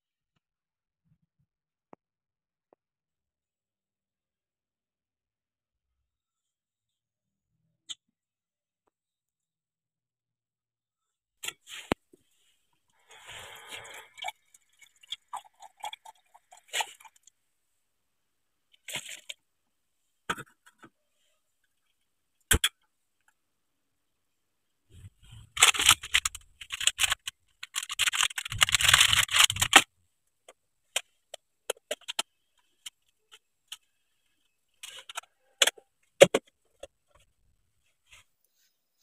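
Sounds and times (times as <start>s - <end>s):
plastic packaging crinkling: 25.6s - 29.8s.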